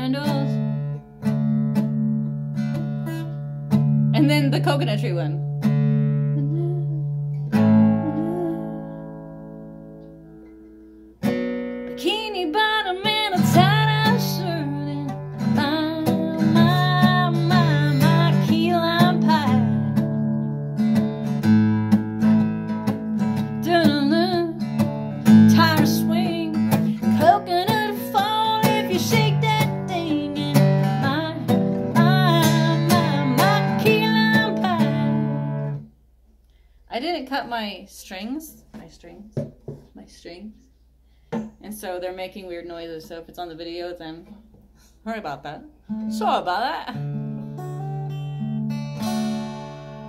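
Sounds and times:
woman singing: 0.0 - 0.6, 6.4 - 9.1, 12.0 - 20.1, 23.6 - 35.6
acoustic guitar strumming: 0.0 - 35.9, 45.9 - 50.0.

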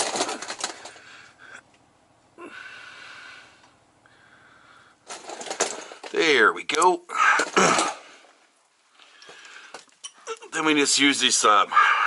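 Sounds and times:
hands and gear clattering: 0.0 - 1.0, 5.0 - 8.1
person breathing out heavily: 2.4 - 6.0, 11.7 - 12.0.

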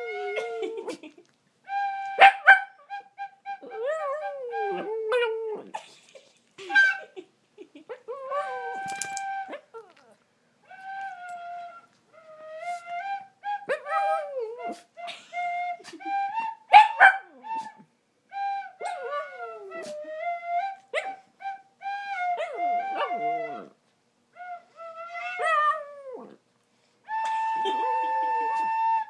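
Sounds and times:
flute melody: 0.0 - 0.8, 1.6 - 5.3, 8.4 - 9.7, 10.6 - 25.6, 27.1 - 29.0
dog yipping: 8.6 - 10.1, 16.7 - 17.7.

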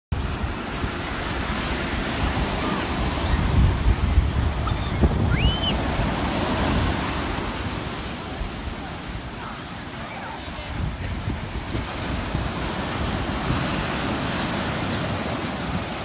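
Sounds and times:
ocean surf breaking: 0.1 - 16.0
wind buffeting microphone: 0.1 - 16.0
short high-pitched call: 4.8 - 5.8.

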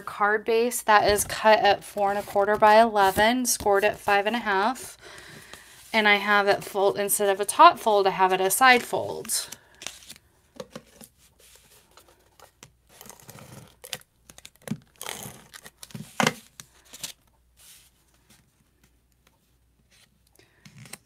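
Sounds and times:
cardstock rustling: 1.1 - 4.8.

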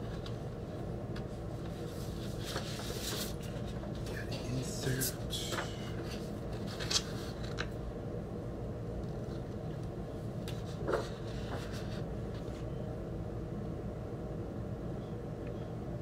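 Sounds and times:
low background hum: 0.0 - 16.0
paper record sleeve rustling: 1.1 - 4.1, 4.8 - 7.8, 9.1 - 12.8.

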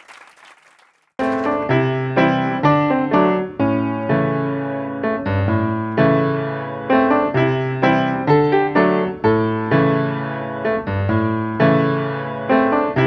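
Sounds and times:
applause: 0.0 - 1.7
piano music: 1.2 - 13.0.

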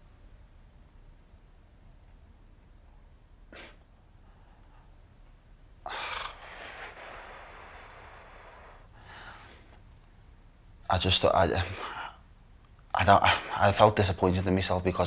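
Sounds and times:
man breathing: 5.8 - 9.8
deep sigh: 5.9 - 9.7.

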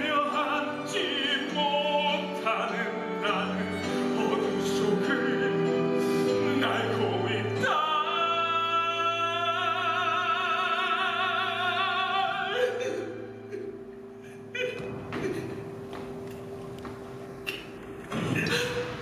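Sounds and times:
man singing ballad: 0.0 - 13.5
orchestral accompaniment: 0.0 - 18.0.

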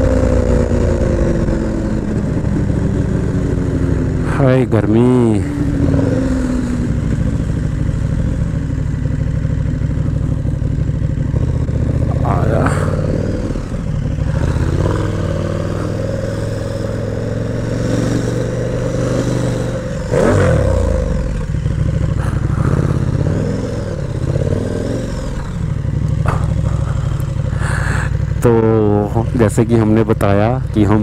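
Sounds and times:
motorcycle engine running: 0.0 - 31.0.

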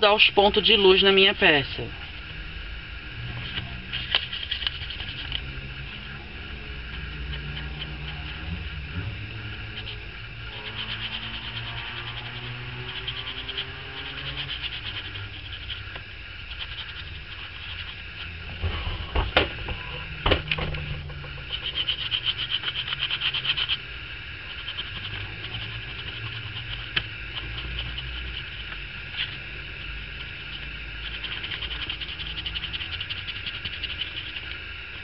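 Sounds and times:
brush scrubbing over foam: 3.3 - 19.0, 21.4 - 23.8, 24.4 - 29.4, 30.3 - 35.0.

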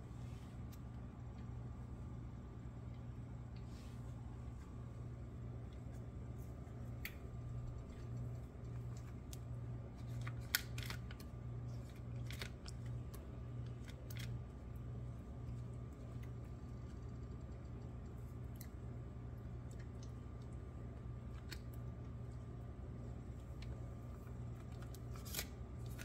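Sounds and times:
steady low hum: 0.0 - 26.0
wrapper clicks and crinkles: 7.8 - 14.4, 24.5 - 26.0.

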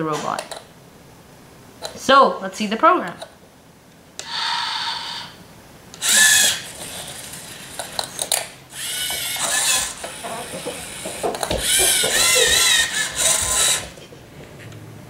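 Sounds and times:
servo motors whining: 4.2 - 5.4, 6.0 - 14.0.

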